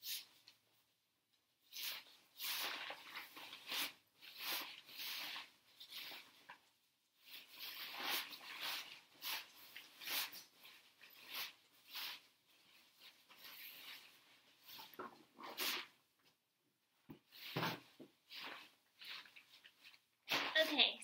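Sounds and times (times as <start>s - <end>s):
tent fabric rustling: 7.2s - 16.0s.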